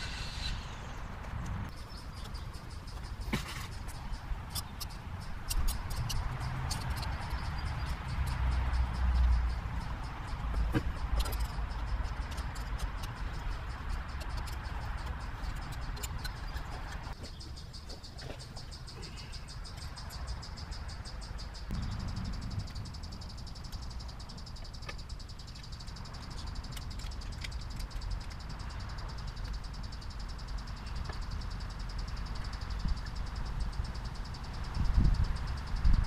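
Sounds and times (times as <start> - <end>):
insects chirring: 0.0 - 36.0
low rumble: 21.7 - 23.6.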